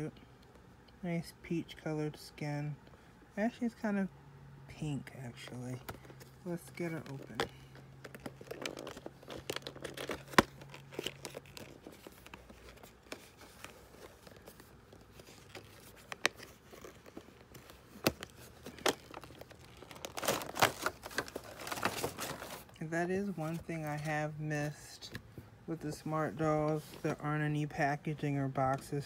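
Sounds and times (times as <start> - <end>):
plastic packaging crinkling: 5.8 - 24.0.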